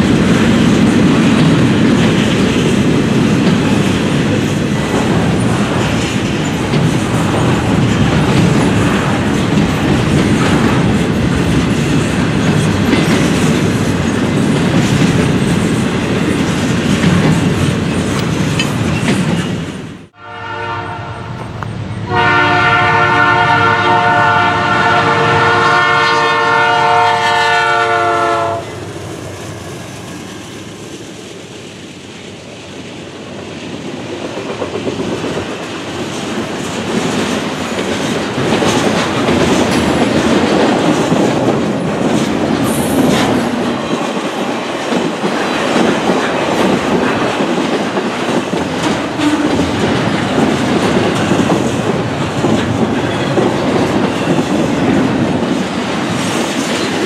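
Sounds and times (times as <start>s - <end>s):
train cars rolling on rails: 0.0s - 57.0s
locomotive air horn chord: 20.2s - 21.4s, 22.0s - 28.8s.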